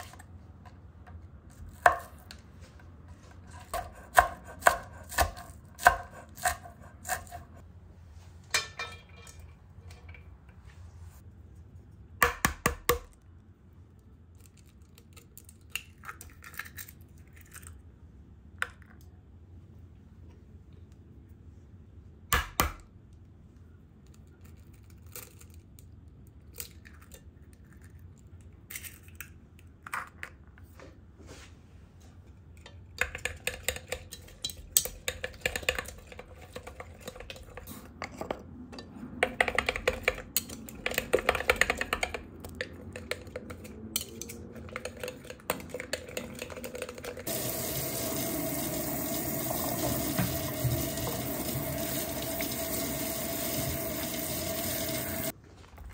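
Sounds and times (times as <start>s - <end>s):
faucet sprayer running into sink: 47.3s - 55.3s.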